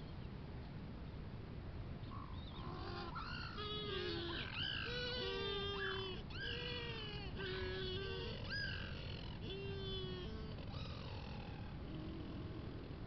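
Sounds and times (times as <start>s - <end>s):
steady low hiss: 0.0s - 13.0s
penguin chicks calling: 2.6s - 11.2s.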